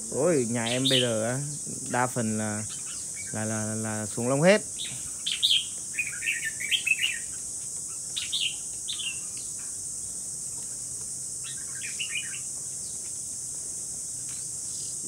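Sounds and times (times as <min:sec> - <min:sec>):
bird warbling song: 0:00.0 - 0:10.8, 0:11.4 - 0:13.2
high drone of insects: 0:00.0 - 0:15.0.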